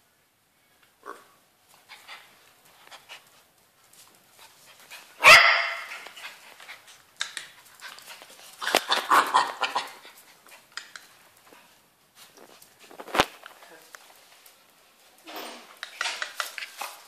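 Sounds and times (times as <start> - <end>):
small dog barking and yipping: 5.2 - 6.2, 8.6 - 10.0.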